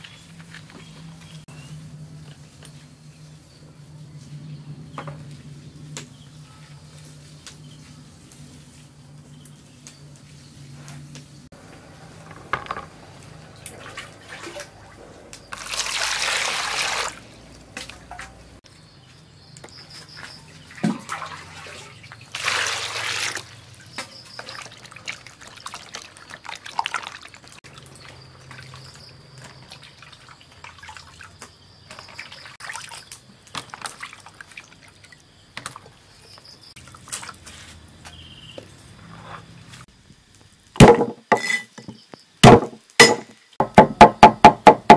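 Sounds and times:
water splashing and sloshing: 11.5s - 38.1s
water pouring into plastic basin: 13.6s - 18.2s, 20.7s - 23.6s, 24.4s - 28.9s, 29.7s - 31.4s, 32.0s - 35.2s.

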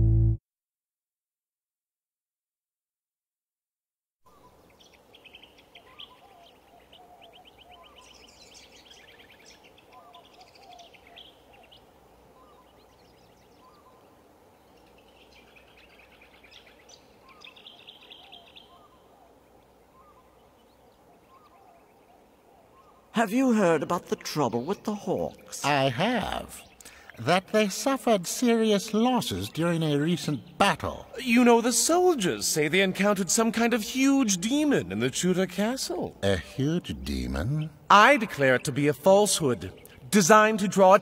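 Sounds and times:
rapid high bird trills: 4.3s - 23.2s
birds chirping: 4.3s - 41.0s
low steady background hiss: 4.3s - 41.0s.

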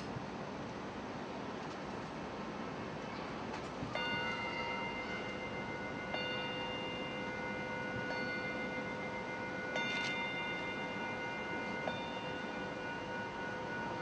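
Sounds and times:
meditation bell ringing: 4.0s - 14.0s.

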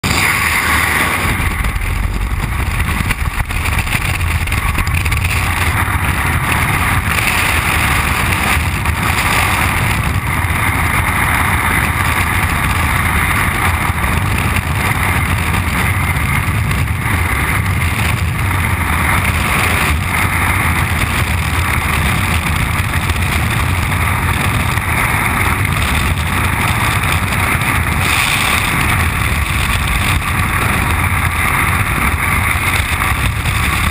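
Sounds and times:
wind rushing over microphone: 0.0s - 33.9s.

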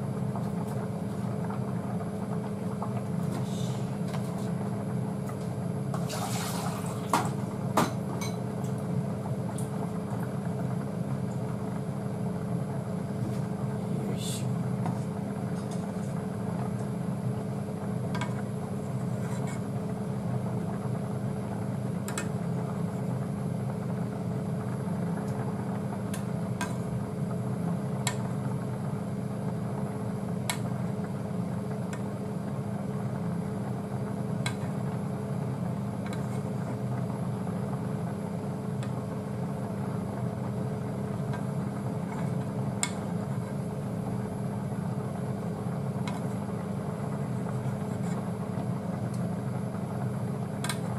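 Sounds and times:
kitchen fan humming: 0.0s - 50.9s.

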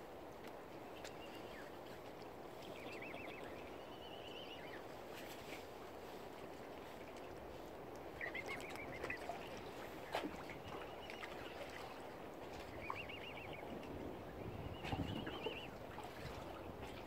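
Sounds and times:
wind and water noise: 0.0s - 17.0s
bird warbling call: 8.2s - 9.6s, 12.7s - 13.7s, 14.6s - 15.8s.

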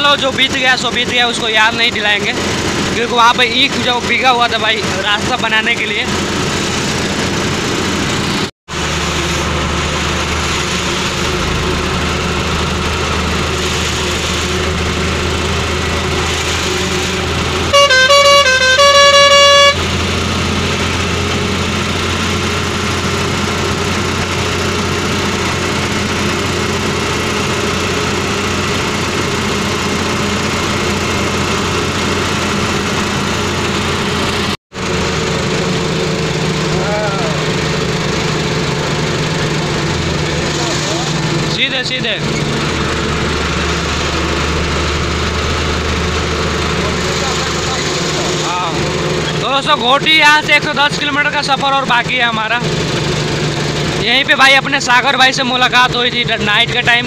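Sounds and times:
road noise: 0.0s - 57.0s
truck engine: 0.0s - 57.0s
two-note truck horn: 17.1s - 20.3s.

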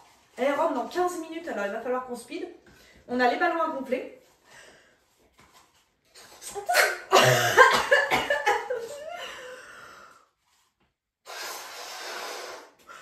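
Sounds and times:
woman coughing: 6.7s - 8.8s
woman laughing: 6.8s - 9.4s
breath blowing into balloon: 11.2s - 13.0s.

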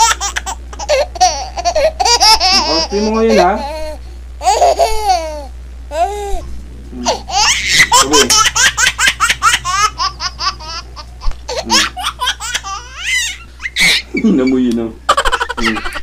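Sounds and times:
high-pitched laughter: 15.1s - 16.0s.

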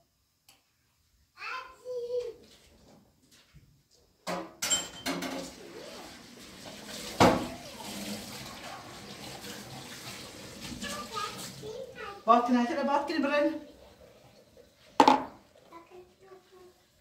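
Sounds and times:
dishware clinking: 4.3s - 5.5s
tap running into steel sink: 15.0s - 15.4s.

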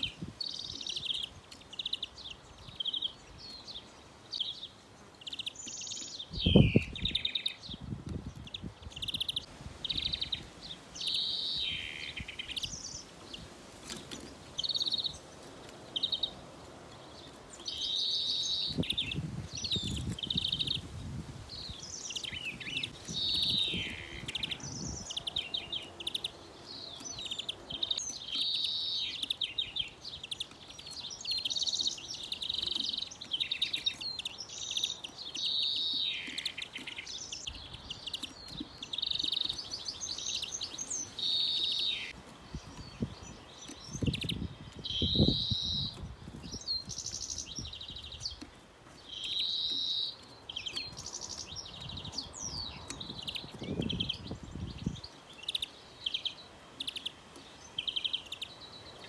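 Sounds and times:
finches twittering and trilling: 17.0s - 59.0s.

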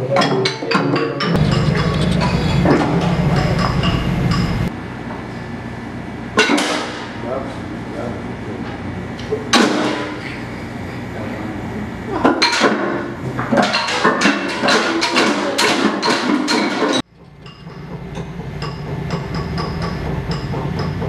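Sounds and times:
bamboo percussion clatter: 0.0s - 4.7s, 12.2s - 21.0s
low hum: 1.3s - 12.4s.

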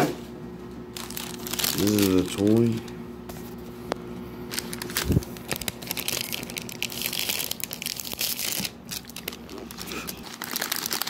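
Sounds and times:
plastic packaging crinkling: 0.9s - 2.9s, 4.4s - 11.0s.

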